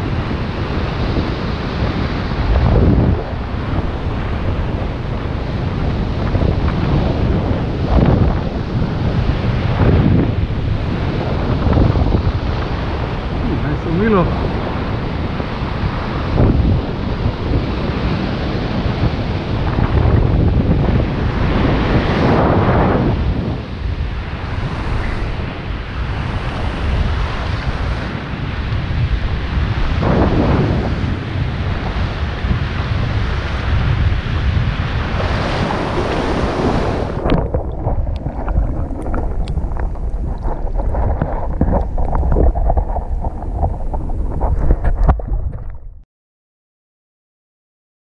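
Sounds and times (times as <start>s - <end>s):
ocean surf breaking on rocks: 0.0s - 44.9s
muffled underwater rumble: 0.0s - 46.0s
wind buffeting microphone: 0.0s - 46.0s
crackling clicks underwater: 37.2s - 45.9s.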